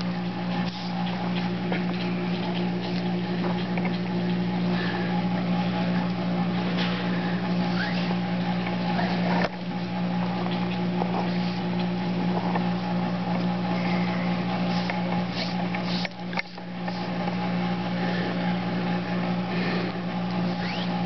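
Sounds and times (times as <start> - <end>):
faint rustles and ticks: 0.0 - 7.1
motor-like drone: 0.0 - 21.0.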